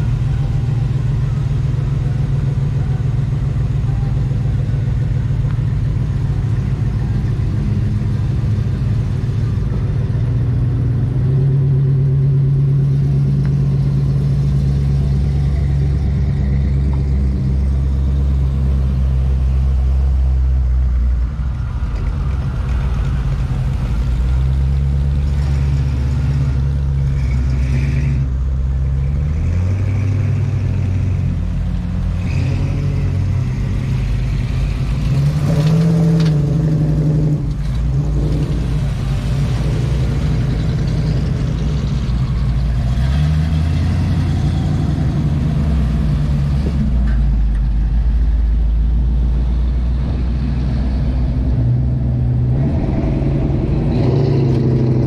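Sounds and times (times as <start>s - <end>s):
car engines idling and rumbling: 0.0s - 55.0s
engine revving: 23.2s - 55.0s.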